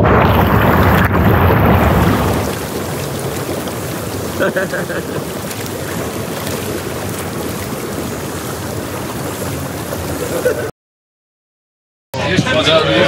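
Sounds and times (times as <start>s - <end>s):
hot tub jets churning water: 0.0s - 10.7s.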